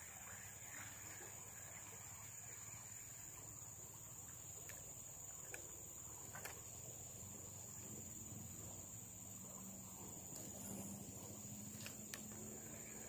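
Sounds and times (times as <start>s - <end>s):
soft ticks: 4.6s - 4.8s, 5.4s - 5.7s, 11.7s - 12.4s.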